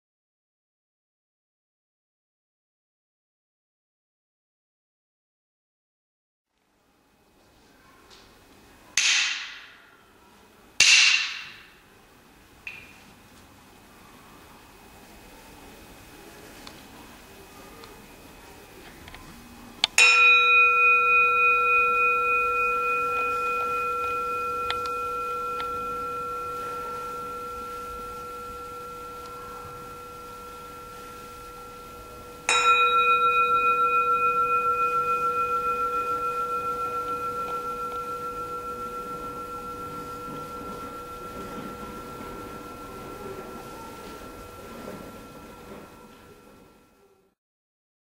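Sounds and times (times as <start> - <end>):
singing bowl struck and ringing: 19.9 - 47.2.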